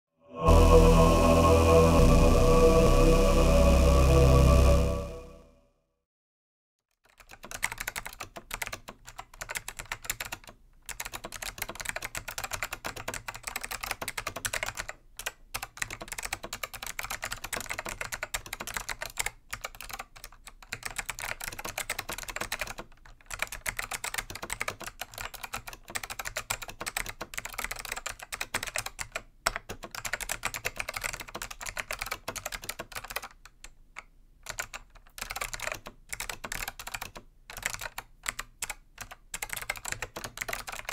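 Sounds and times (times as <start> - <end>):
fast clicky keyboard typing: 7.0 - 40.9.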